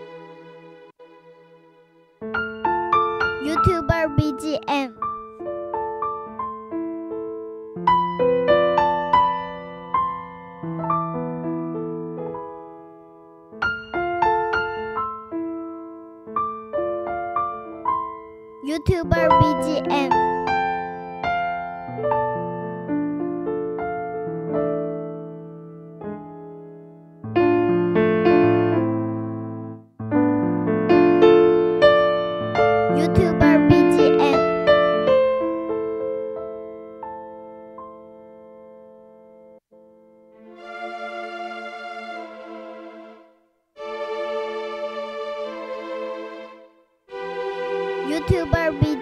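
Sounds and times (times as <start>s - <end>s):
gentle piano melody: 2.2s - 40.2s
solo piano music: 5.0s - 18.6s.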